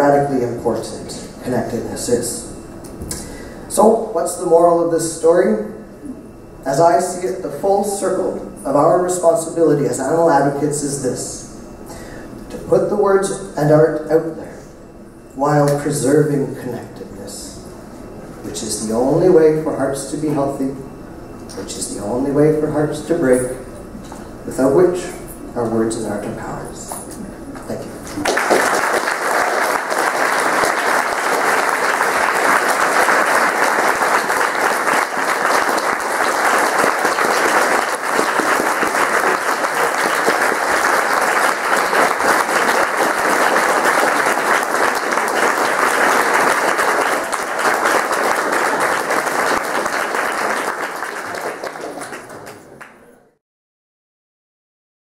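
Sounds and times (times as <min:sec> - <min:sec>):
audience applauding: 0:28.1 - 0:53.1.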